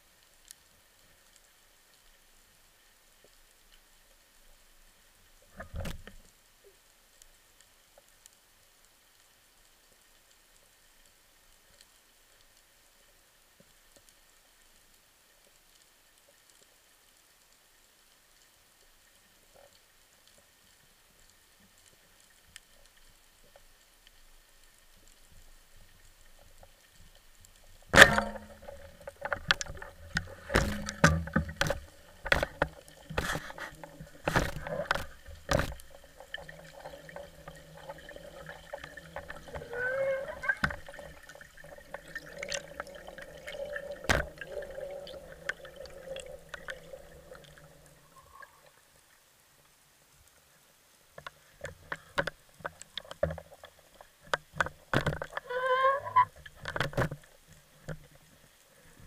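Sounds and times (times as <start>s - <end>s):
water bubbling: 27.7s - 48.8s
speargun firing crack: 28.0s - 28.8s
speargun handling knocks and clicks: 28.0s - 36.5s.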